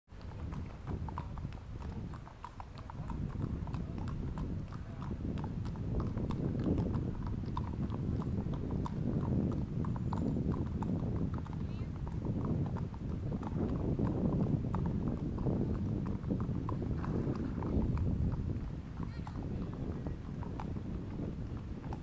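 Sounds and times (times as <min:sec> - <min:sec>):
horse hooves on concrete: 0:00.2 - 0:22.0
low background rumble: 0:10.6 - 0:22.0.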